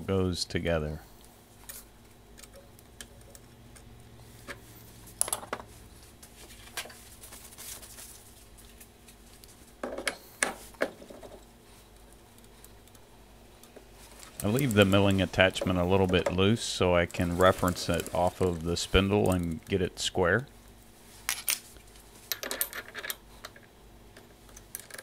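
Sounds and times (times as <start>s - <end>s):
metal parts clinking and knocking: 22.3s - 23.6s.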